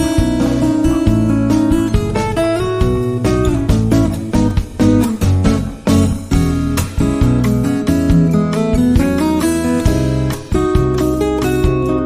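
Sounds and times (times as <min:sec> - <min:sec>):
acoustic guitar music: 0:00.0 - 0:12.0.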